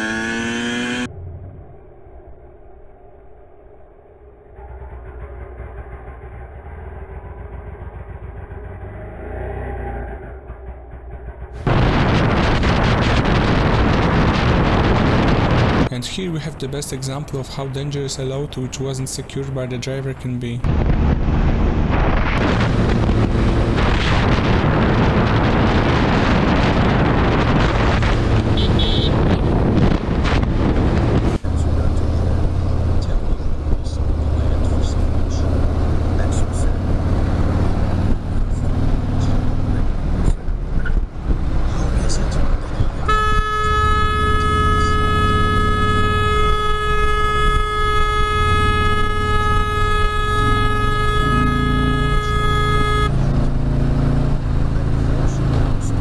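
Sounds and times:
motorcycle engine running: 4.6s - 9.2s, 10.2s - 15.8s, 20.7s - 56.0s
wind buffeting microphone: 11.6s - 15.9s, 20.6s - 31.9s, 37.4s - 43.7s
vehicle horn blast: 28.2s - 29.5s, 43.0s - 53.3s.

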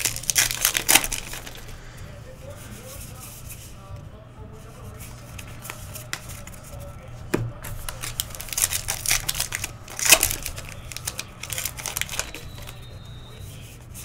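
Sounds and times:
wrapper tearing and crinkling: 0.0s - 1.8s, 7.6s - 14.0s.

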